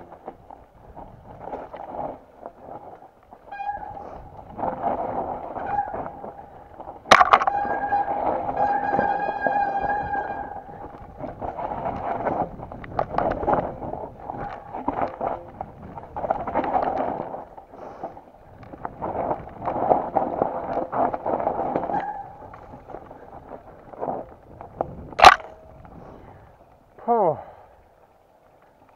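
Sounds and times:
mountain bike rattling on trail: 0:00.0 - 0:28.9
bike brakes squealing: 0:03.4 - 0:04.3, 0:05.5 - 0:06.5, 0:07.4 - 0:10.8, 0:21.8 - 0:22.5.

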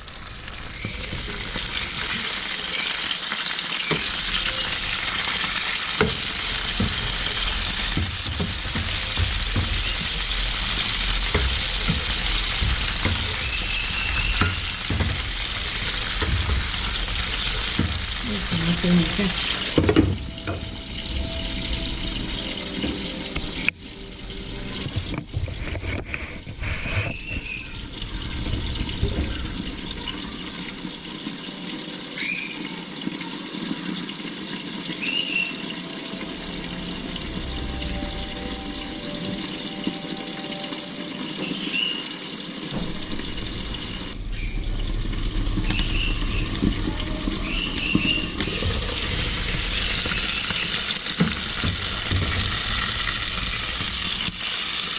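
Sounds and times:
fish sizzling in hot oil: 0:00.0 - 0:54.9
short high squeaks: 0:13.3 - 0:14.9, 0:26.7 - 0:27.8.

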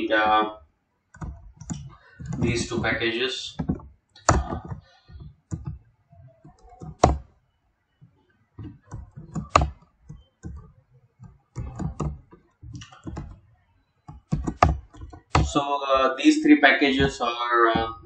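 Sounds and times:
computer keyboard keystrokes: 0:01.1 - 0:02.6, 0:03.6 - 0:05.8, 0:06.4 - 0:07.3, 0:08.6 - 0:13.4, 0:14.1 - 0:15.6.

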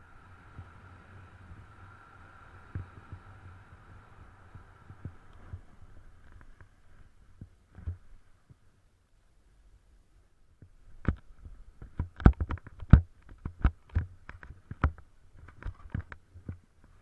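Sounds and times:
thumps and knocks on camera: 0:11.0 - 0:16.6.

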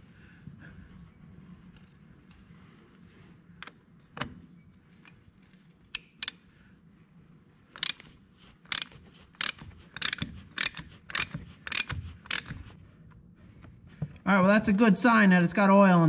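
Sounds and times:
hand ratchet clicking: 0:07.7 - 0:12.8.

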